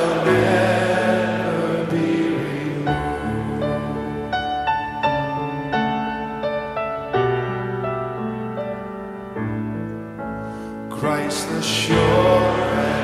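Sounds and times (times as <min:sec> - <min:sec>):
worship band playing: 0:00.0 - 0:07.7, 0:11.0 - 0:13.0
piano playing slow chords: 0:00.0 - 0:13.0.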